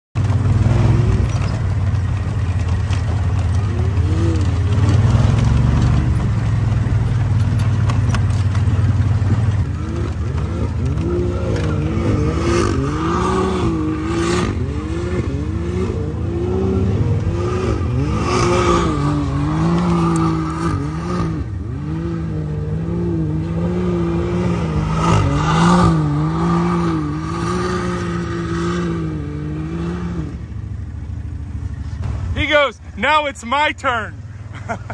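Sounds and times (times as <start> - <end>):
engine revving: 0.2 - 34.0.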